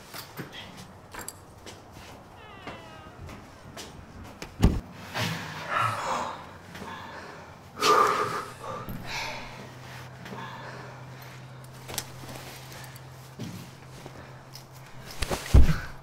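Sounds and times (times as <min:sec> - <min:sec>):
rustling movement: 0:09.1 - 0:16.0.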